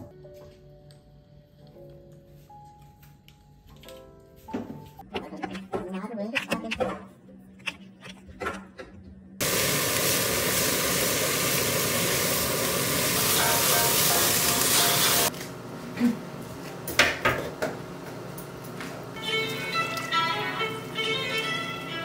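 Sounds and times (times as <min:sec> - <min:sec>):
carrots sizzling in frying pan: 0:09.4 - 0:15.3
pan of water simmering: 0:09.4 - 0:15.3.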